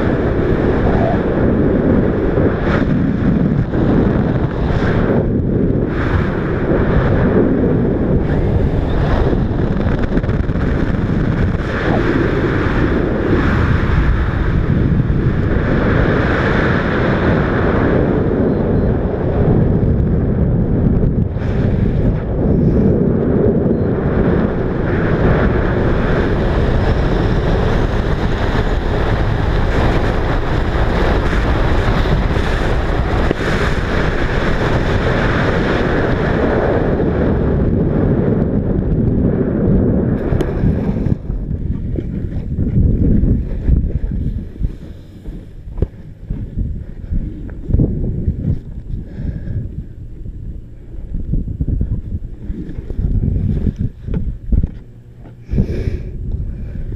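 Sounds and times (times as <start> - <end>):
wind buffeting microphone: 0.0 - 56.9.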